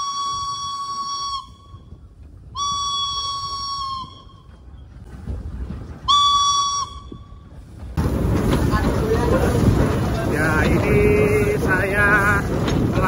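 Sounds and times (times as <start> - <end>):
steam whistle blasts: 0.0 - 1.8, 2.6 - 4.4, 6.1 - 7.2
train rumbling: 0.0 - 13.0.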